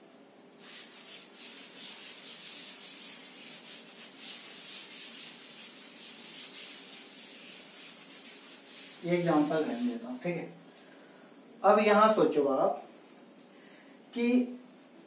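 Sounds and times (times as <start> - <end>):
duster rubbing on blackboard: 0.6 - 10.2.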